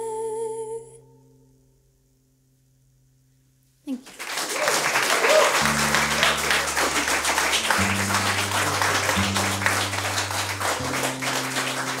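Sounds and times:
audience applauding: 0:03.9 - 0:12.0
low sustained music chords: 0:05.6 - 0:12.0.

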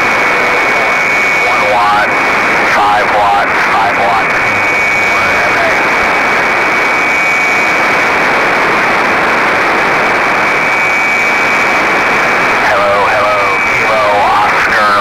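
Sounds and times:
radio receiver hiss: 0:00.1 - 0:10.7, 0:11.4 - 0:15.0
faint garbled radio voice: 0:00.3 - 0:06.4, 0:12.6 - 0:15.0.

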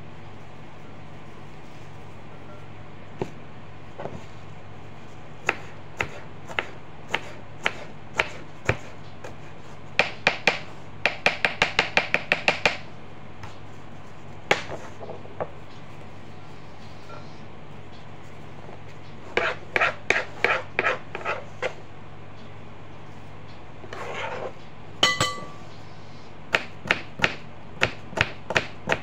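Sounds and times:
knife chopping onion on board: 0:05.4 - 0:12.9, 0:19.3 - 0:21.7, 0:26.5 - 0:29.0.

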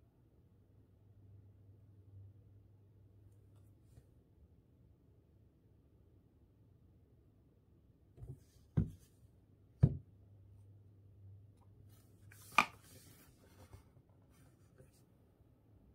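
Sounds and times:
objects knocked on desk: 0:08.2 - 0:09.1.

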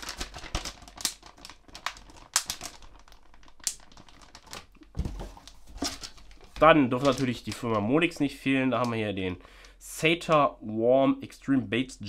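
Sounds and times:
plastic packets crinkling: 0:00.0 - 0:09.1.

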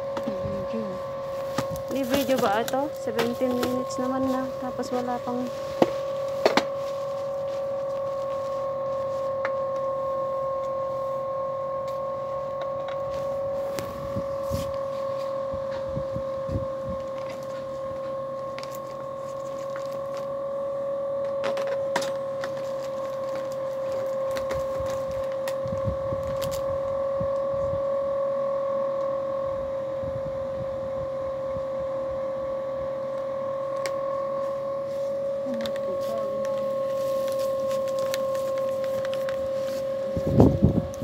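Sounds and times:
machine hum: 0:00.0 - 0:41.0.

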